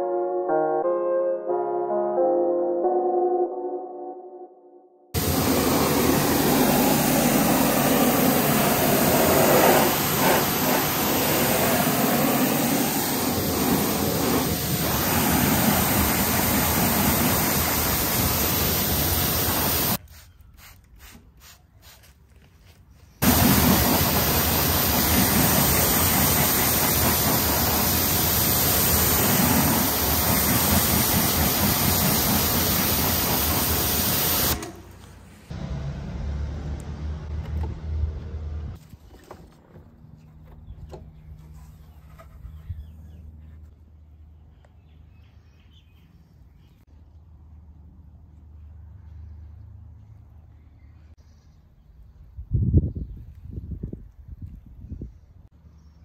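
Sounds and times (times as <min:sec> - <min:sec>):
pressure washer spraying: 0:05.2 - 0:20.0, 0:23.2 - 0:34.8
spray bottle squirting: 0:05.2 - 0:22.2.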